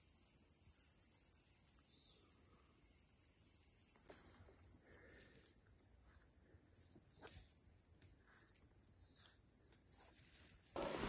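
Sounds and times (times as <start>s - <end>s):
insect chirring: 0.0s - 10.9s
rustle of branches: 9.8s - 11.0s.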